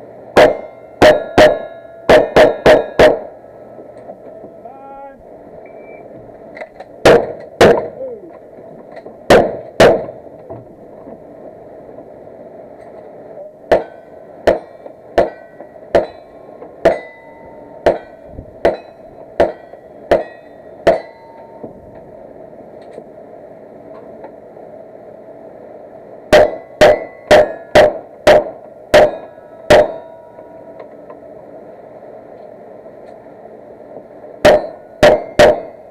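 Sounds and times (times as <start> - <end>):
shotgun blasts: 0.4 - 3.3, 7.0 - 8.0, 9.3 - 10.2, 13.7 - 16.1
steel targets ringing: 0.4 - 3.4, 13.7 - 21.8, 26.3 - 30.7, 34.4 - 35.9
pistol shots: 7.0 - 8.0, 9.3 - 10.2, 13.7 - 16.1.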